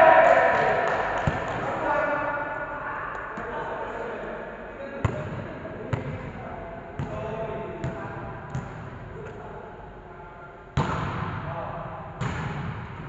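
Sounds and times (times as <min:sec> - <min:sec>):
volleyball bouncing on gym floor: 0:00.5 - 0:01.7, 0:05.0 - 0:06.3, 0:07.0 - 0:09.3, 0:10.8 - 0:11.5, 0:12.2 - 0:13.0.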